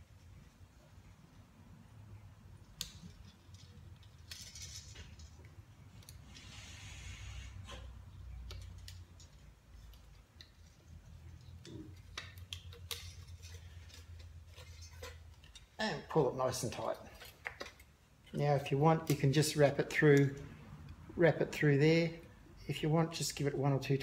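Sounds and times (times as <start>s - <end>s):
pliers and wire clicking: 2.5s - 6.4s, 8.2s - 15.8s.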